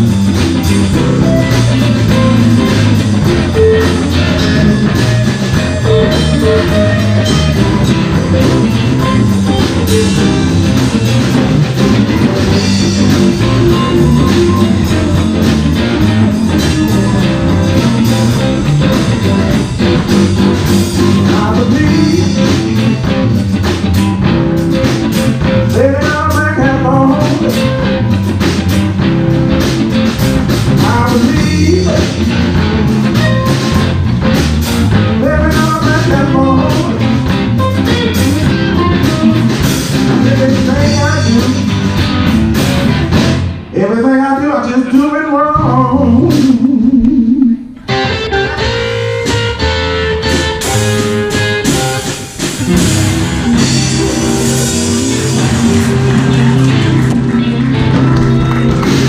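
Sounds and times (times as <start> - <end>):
bass guitar: 0.0 - 59.0
drum kit: 0.0 - 59.0
electric guitars: 0.0 - 59.0
person singing: 20.7 - 23.3, 25.6 - 27.8, 30.7 - 32.5, 35.0 - 37.3, 40.0 - 42.0, 43.7 - 47.8.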